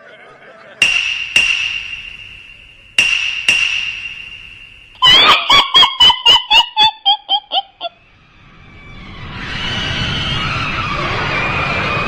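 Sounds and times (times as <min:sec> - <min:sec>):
sharp metallic strikes: 0:00.8 - 0:05.1
creature chattering cackle: 0:05.0 - 0:08.0.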